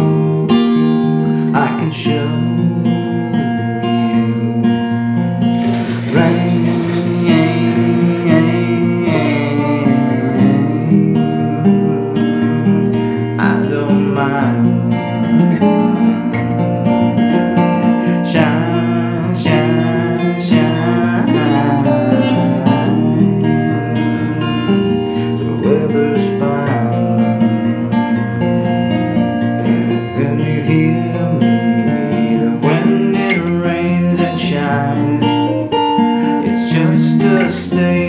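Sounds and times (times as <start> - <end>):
acoustic guitar strumming: 0.0 - 38.0
person singing: 1.2 - 38.0.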